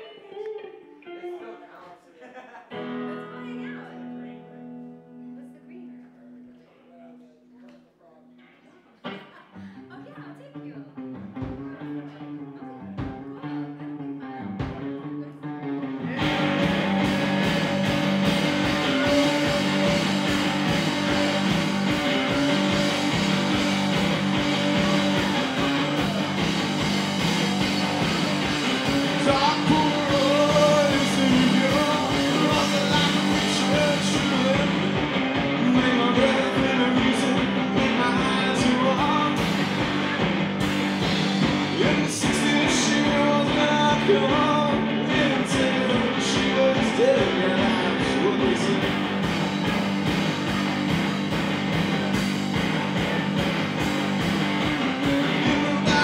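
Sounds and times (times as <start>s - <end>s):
distorted electric guitar: 2.7s - 6.7s, 8.4s - 56.0s
electric guitar figure: 2.7s - 6.7s, 10.7s - 56.0s
drums: 11.1s - 12.2s, 12.8s - 13.6s, 14.4s - 15.1s, 15.8s - 56.0s
man singing: 15.9s - 40.2s, 41.4s - 49.4s, 55.0s - 56.0s.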